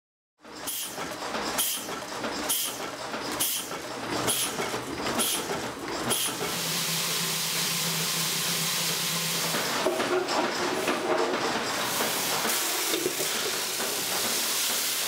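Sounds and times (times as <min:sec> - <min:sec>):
machine clacking: 0:00.4 - 0:06.6, 0:08.9 - 0:15.0.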